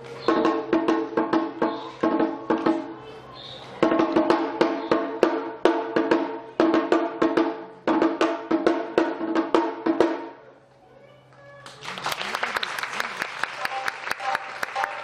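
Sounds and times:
drum and percussion strikes: 0.0 - 3.0, 3.7 - 10.5
festival band playing: 0.0 - 10.6.

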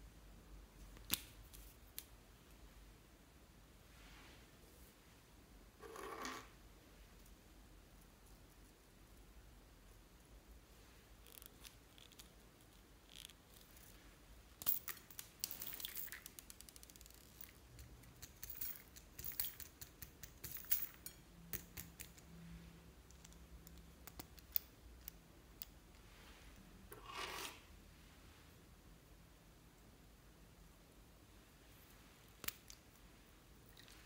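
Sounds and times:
soft rustle: 3.8 - 17.6, 25.8 - 28.8, 31.3 - 34.0.

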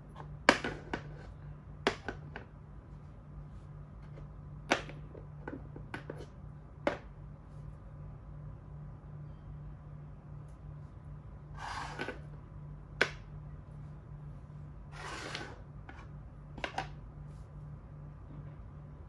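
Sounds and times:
steady low hum: 0.0 - 19.0
chess pieces rubbing on board: 11.6 - 12.3, 14.9 - 16.1.

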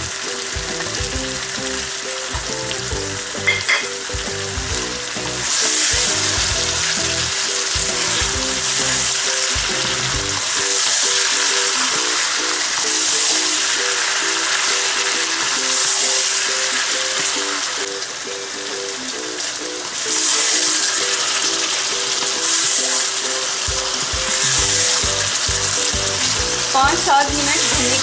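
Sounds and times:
food sizzling in a wok: 0.0 - 28.0
soft background music: 0.0 - 28.0.

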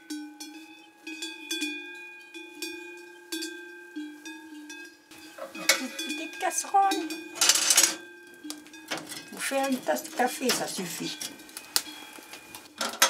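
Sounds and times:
cowbells clanking: 0.0 - 13.0
clatter and rustling: 7.4 - 8.0, 8.9 - 13.0.

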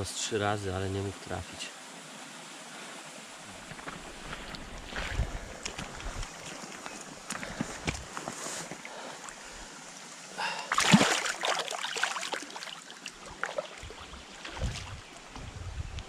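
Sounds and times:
river water washing: 1.8 - 15.4
fish splashing in water: 10.7 - 15.1.

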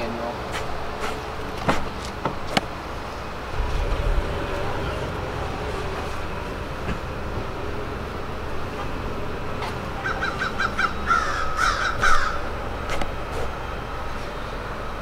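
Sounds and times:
low background rumble: 0.0 - 15.0
bird calling: 9.7 - 13.6.

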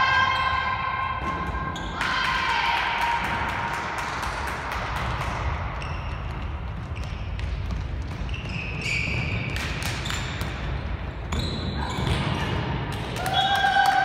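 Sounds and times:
ball bouncing on court: 3.2 - 13.7.

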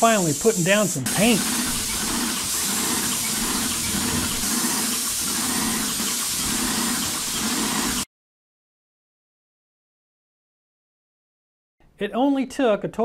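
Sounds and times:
paint sprayer hissing: 0.0 - 8.1
pulsing low hum: 2.0 - 4.6.

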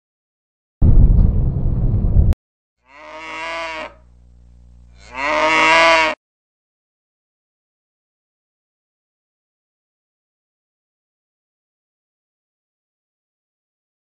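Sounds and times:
loud low rumble: 0.8 - 2.4
cow mooing: 2.8 - 4.1, 4.9 - 6.2.

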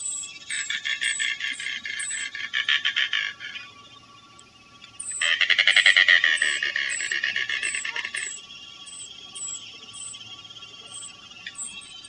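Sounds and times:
bird rattling croaking call: 0.5 - 3.6, 5.0 - 10.2.

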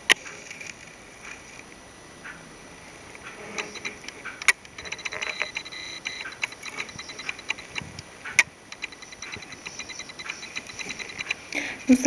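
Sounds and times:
fast faint ticking: 2.3 - 12.0
needle clicking on beads: 3.3 - 12.0.

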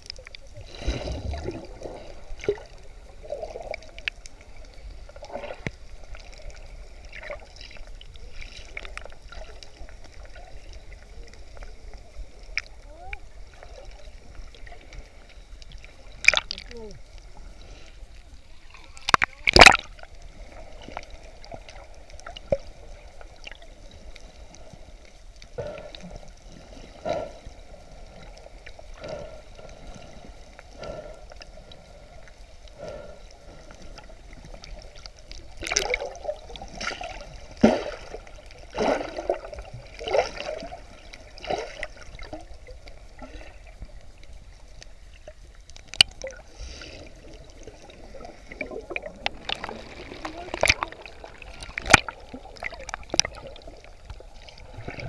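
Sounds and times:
bubbly gushes: 0.0 - 15.1, 18.5 - 24.0, 33.9 - 44.0, 45.3 - 55.0
underwater gurgling and bubbling: 0.0 - 55.0.

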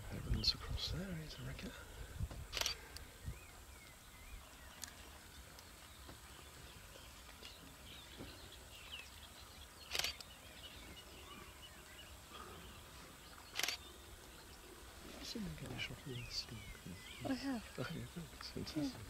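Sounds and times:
faint bird calls: 0.4 - 19.0
sharp clicks: 2.5 - 3.1, 9.9 - 10.3, 13.5 - 13.8.

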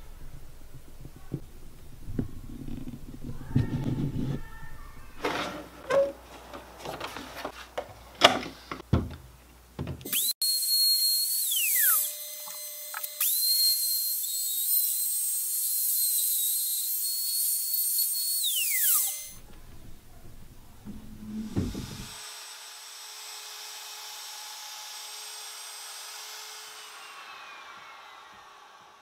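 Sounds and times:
router whining: 10.1 - 29.0.

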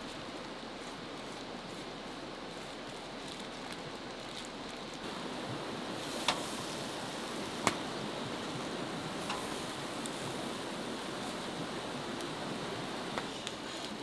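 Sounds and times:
charcoal fire crackling: 0.0 - 14.0
steady hiss: 0.0 - 14.0
sharp pops: 6.1 - 6.6, 7.5 - 8.0.

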